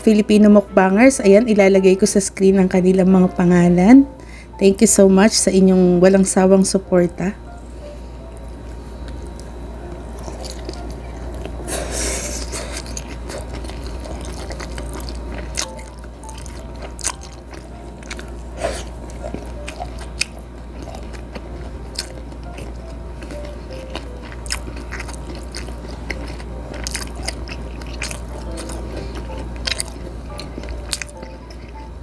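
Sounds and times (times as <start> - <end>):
steady low hum: 0.0 - 32.0
chewing and biting food: 8.3 - 32.0.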